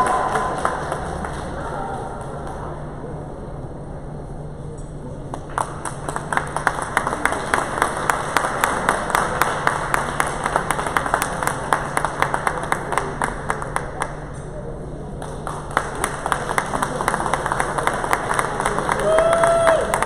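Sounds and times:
spectators clapping: 0.0 - 2.8, 5.3 - 14.5, 15.1 - 20.0.

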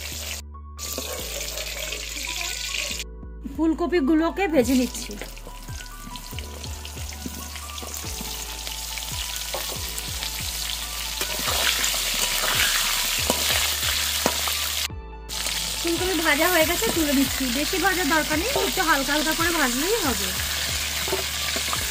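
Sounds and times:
vegetables sizzling in hot oil: 0.0 - 3.0, 4.7 - 21.9
metal spatula stirring: 20.9 - 21.8.

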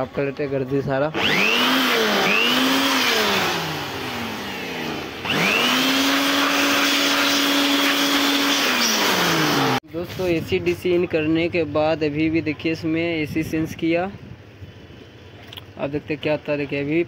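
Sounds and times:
electric air blower whining: 1.0 - 9.8.

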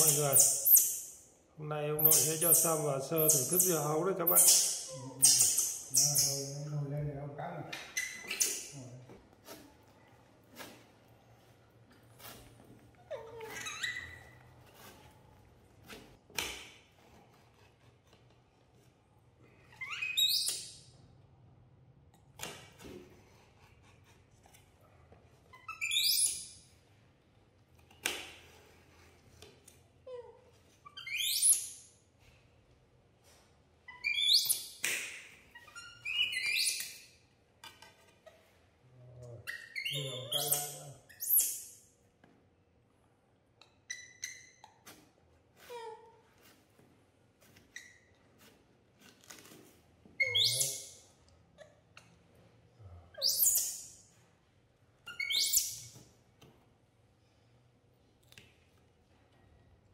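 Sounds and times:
baby monkey squeaking: 0.0 - 1.2, 2.0 - 6.6, 7.9 - 8.7, 13.1 - 14.4, 25.6 - 26.5, 30.9 - 31.8, 33.9 - 34.8, 35.6 - 37.1, 39.5 - 41.7, 43.9 - 44.8, 50.2 - 51.0, 53.2 - 53.9, 55.1 - 55.9.

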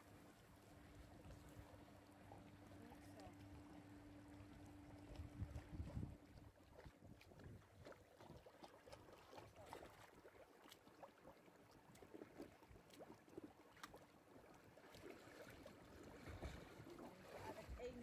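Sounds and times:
dog splashing in water: 5.0 - 18.0.

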